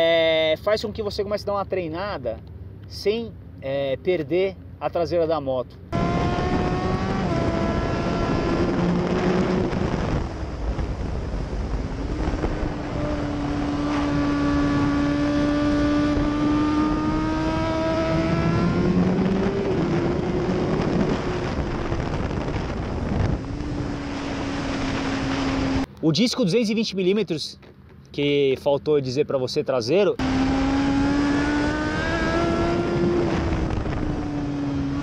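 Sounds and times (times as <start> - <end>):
motorcycle engine at speed: 5.9 - 25.9, 30.2 - 35.0
wind rushing over microphone: 5.9 - 25.9, 30.2 - 35.0.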